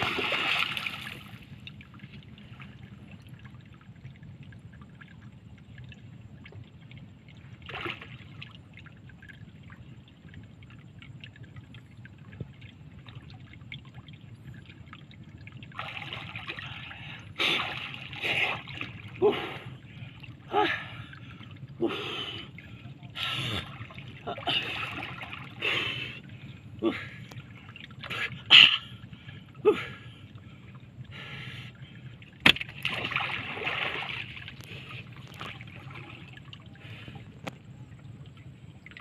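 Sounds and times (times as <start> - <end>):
man splashing: 0.0 - 1.5, 15.7 - 19.8, 21.8 - 26.1, 32.4 - 37.2
water drips and crackles: 0.0 - 39.0
water lapping against boat hull: 0.0 - 39.0.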